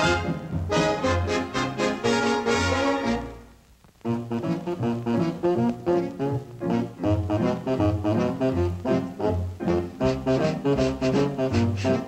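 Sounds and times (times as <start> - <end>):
brass band music: 0.0 - 12.0.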